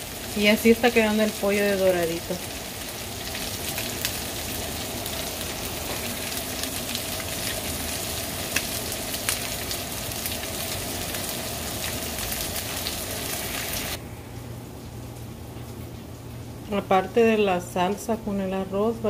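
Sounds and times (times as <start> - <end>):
chicken sizzling in a skillet: 0.0 - 14.0.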